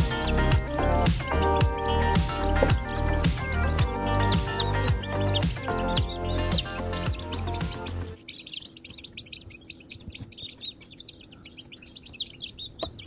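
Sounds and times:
background music: 0.0s - 8.2s
chicks peeping: 0.0s - 13.0s.

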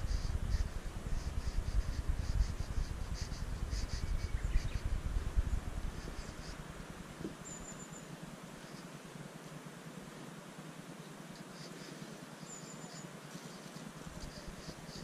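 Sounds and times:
wind rumbling on microphone: 0.0s - 7.6s.

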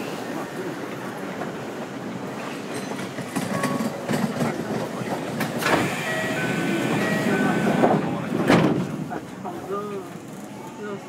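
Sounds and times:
electric train pulling away: 5.6s - 8.2s.

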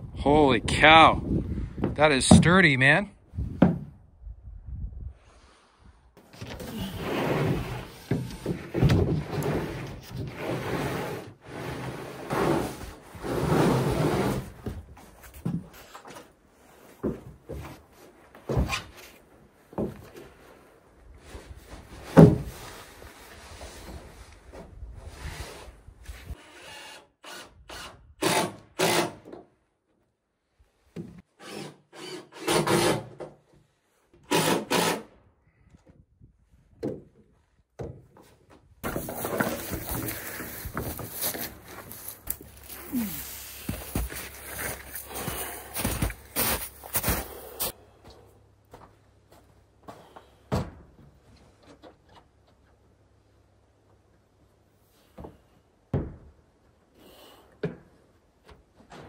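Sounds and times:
plywood sheet scraping on wood: 6.2s - 16.9s.

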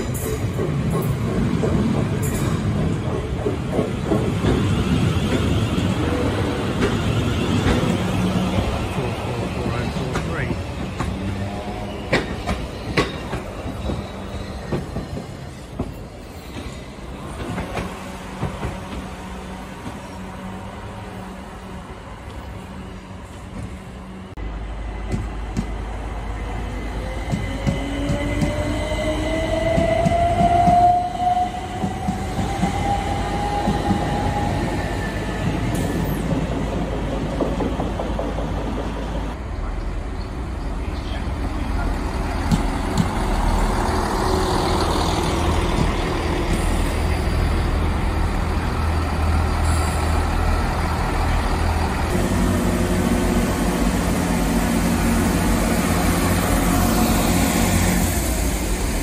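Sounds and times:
diesel train engine rumble: 35.1s - 59.0s.

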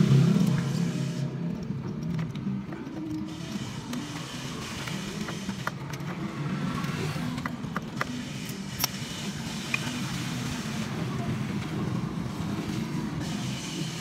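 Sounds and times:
low engine-like hum: 0.0s - 5.3s.

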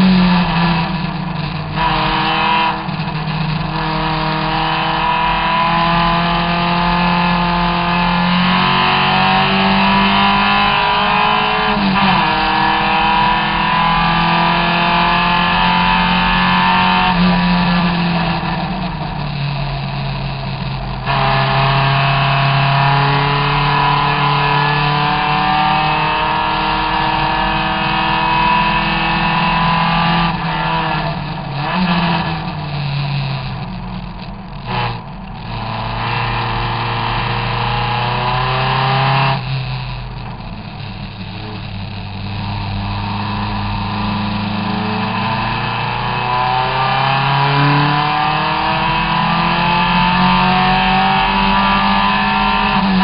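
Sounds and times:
race car engine accelerating: 0.0s - 53.0s.

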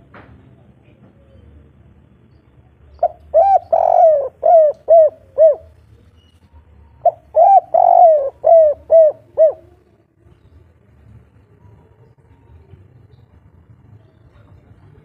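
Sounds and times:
dove cooing: 3.0s - 5.8s, 7.0s - 10.0s.

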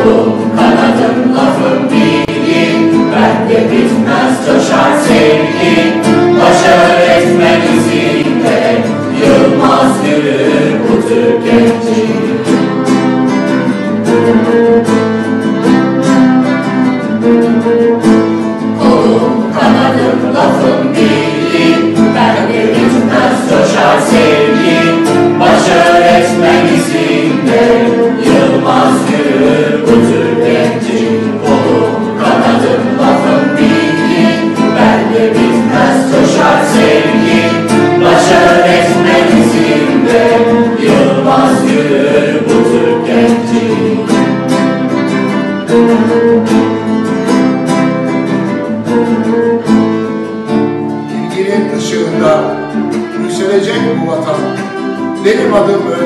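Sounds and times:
mixed choir singing: 0.0s - 14.7s, 18.5s - 46.8s
acoustic guitar: 0.0s - 56.0s
violin: 0.0s - 56.0s.

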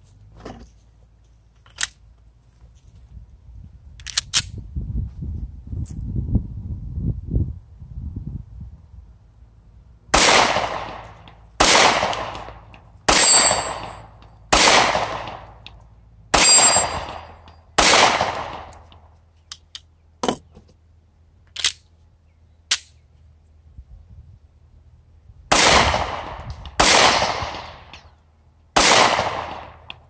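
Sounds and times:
pistol shots with echo: 10.2s - 15.6s, 16.3s - 18.8s, 25.5s - 28.0s, 28.8s - 30.0s.

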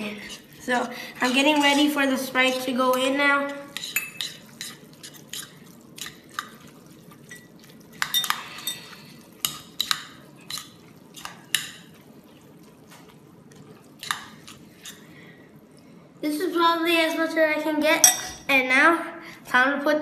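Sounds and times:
spoon clinking and scraping bowl: 2.5s - 11.9s, 14.0s - 15.0s, 18.0s - 18.4s.

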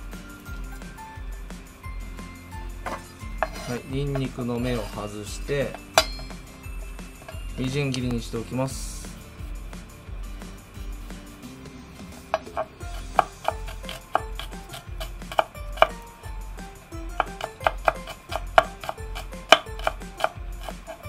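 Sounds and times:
knife chopping on wooden board: 2.8s - 5.1s, 12.1s - 16.0s, 16.9s - 21.0s
soft knife slicing strokes: 2.9s - 6.2s.

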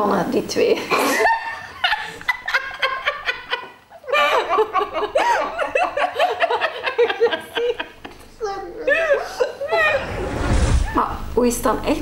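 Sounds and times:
women laughing: 0.9s - 8.3s, 8.9s - 10.2s.

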